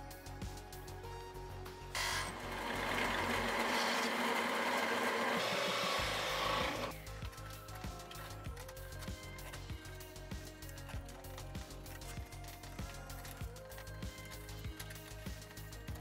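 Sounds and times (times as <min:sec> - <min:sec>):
background music: 0:00.0 - 0:16.0
drill press boring into plywood: 0:02.0 - 0:06.9.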